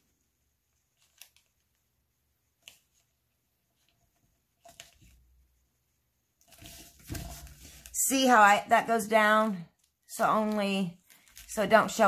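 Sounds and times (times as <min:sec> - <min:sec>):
paper rustle: 0:00.7 - 0:01.9, 0:02.5 - 0:05.3, 0:06.4 - 0:08.1, 0:09.8 - 0:12.0
soft paper ticks: 0:00.9 - 0:01.8.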